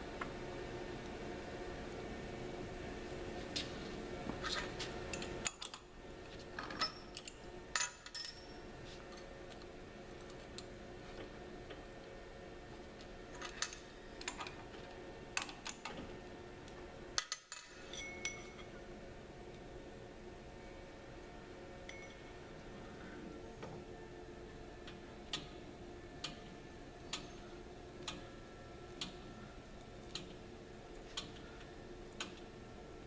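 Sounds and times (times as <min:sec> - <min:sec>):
faint steady hum: 0:00.0 - 0:33.0
metallic clinks of steel tools: 0:17.2 - 0:18.7, 0:21.9 - 0:22.3.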